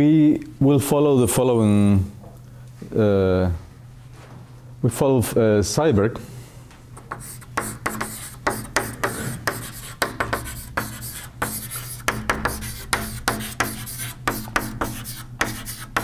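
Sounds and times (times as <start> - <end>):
chalk scratching on blackboard: 7.0 - 16.0.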